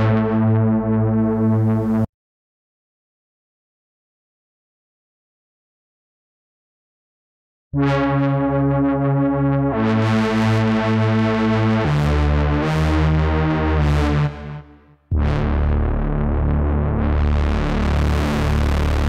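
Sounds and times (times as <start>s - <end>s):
synthesizer lead notes: 0.0s - 2.1s, 7.8s - 19.0s.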